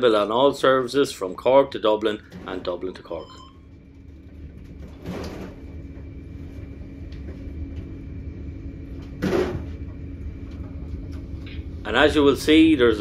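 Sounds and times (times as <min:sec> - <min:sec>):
train carriage rumble and hum: 0:03.9 - 0:13.0.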